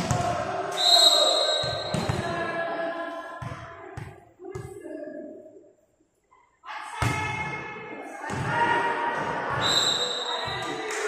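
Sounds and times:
spectators' voices echoing: 0.0 - 4.0, 6.6 - 11.0.

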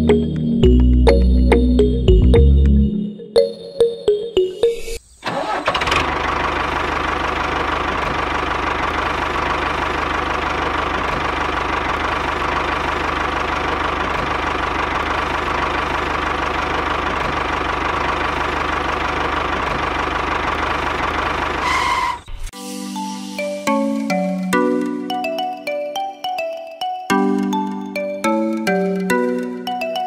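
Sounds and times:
tractor engine running: 5.2 - 22.5.

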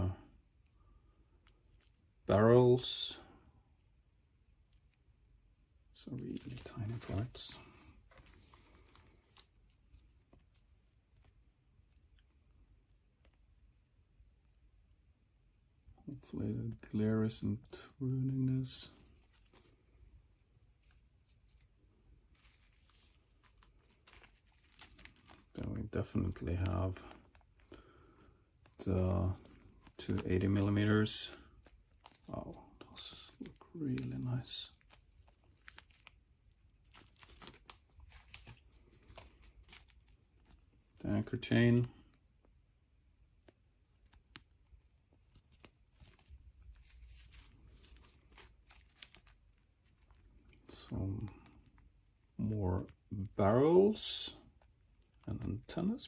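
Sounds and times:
soft rustle: 0.0 - 56.0
plastic bags crinkling: 6.2 - 11.4, 18.8 - 42.2, 43.4 - 53.0.

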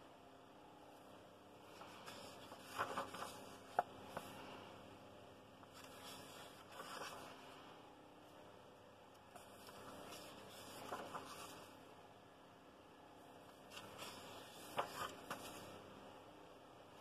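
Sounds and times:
page rustling: 1.7 - 4.5, 5.6 - 7.6, 9.4 - 11.8, 13.6 - 15.9
hands brushing over pages: 1.7 - 4.6, 5.6 - 7.6, 9.4 - 11.8, 13.6 - 15.8.

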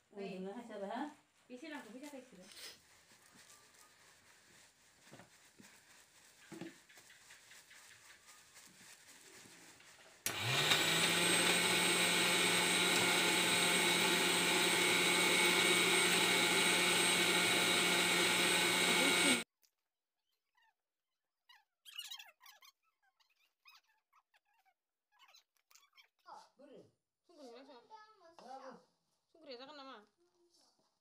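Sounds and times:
flour sifting through sieve: 1.6 - 19.4
electric motor running: 10.3 - 19.4.

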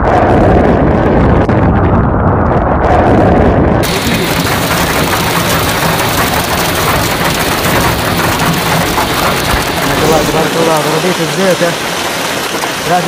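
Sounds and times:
low rumbling noise: 0.0 - 13.0
hail pelting a vehicle: 3.8 - 13.0.

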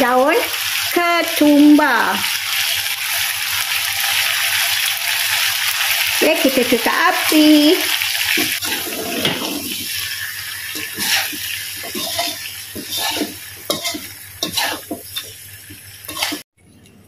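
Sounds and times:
food sizzling in a wok: 0.0 - 16.5
spatula scraping a wok: 8.3 - 15.4, 16.0 - 16.5.

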